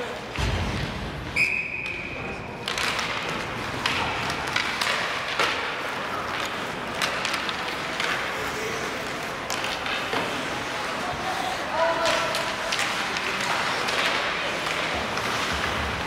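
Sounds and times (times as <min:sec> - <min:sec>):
hockey sticks and puck clacking: 0:00.0 - 0:16.0
whistle: 0:01.3 - 0:02.2.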